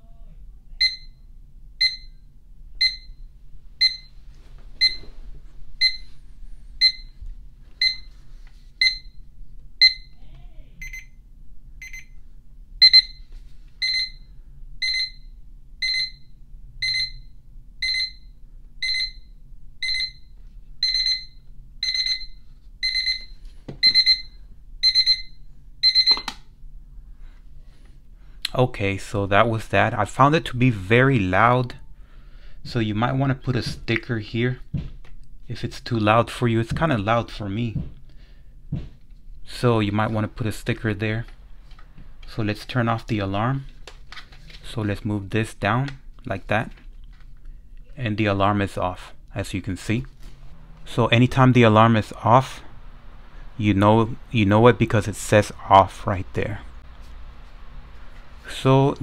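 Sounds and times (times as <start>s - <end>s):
alarm clock beeping: 0.8s - 1.2s, 1.8s - 2.2s, 2.8s - 3.2s, 3.8s - 4.2s, 4.8s - 5.1s, 5.8s - 6.1s, 6.8s - 7.2s, 7.8s - 8.2s, 8.8s - 9.2s, 9.8s - 10.2s, 10.8s - 11.2s, 11.8s - 12.2s, 12.8s - 26.4s.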